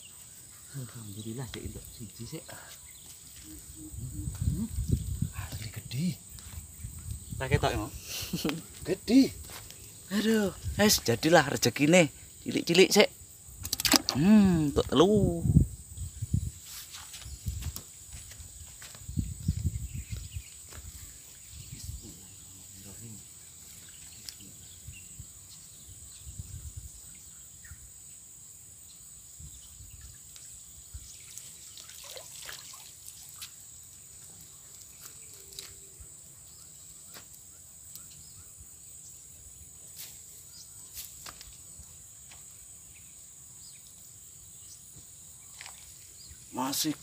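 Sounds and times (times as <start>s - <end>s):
high insect drone: 0.0s - 47.0s
trap hauled out of water: 13.6s - 14.3s
water dripping: 30.3s - 33.6s.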